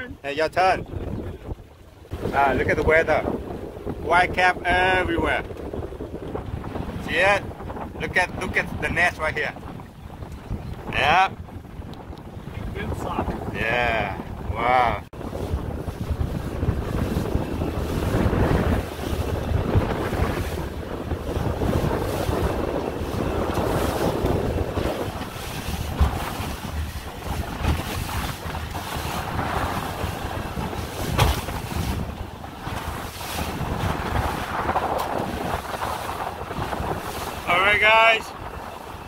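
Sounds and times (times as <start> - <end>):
wind buffeting microphone: 0.0 - 39.0
water splashing against boat hull: 15.1 - 39.0
sharp knocks: 31.1 - 31.5.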